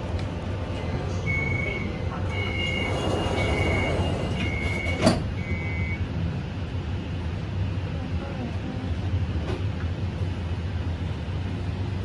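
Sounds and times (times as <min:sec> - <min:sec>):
train car low rumble: 0:00.0 - 0:12.0
two-note door warning beeping: 0:01.3 - 0:06.0.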